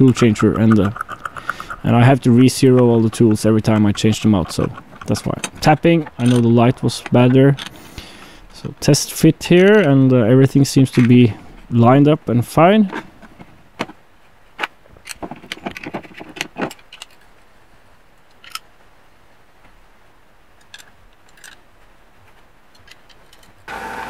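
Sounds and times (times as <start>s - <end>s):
metal parts clicking and clinking: 0.0s - 7.8s, 15.0s - 17.3s, 18.3s - 18.7s, 20.6s - 21.6s, 22.7s - 23.6s.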